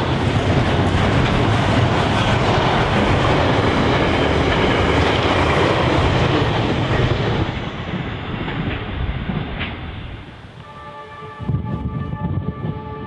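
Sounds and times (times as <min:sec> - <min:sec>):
train wheels rolling over rails: 0:00.0 - 0:10.7.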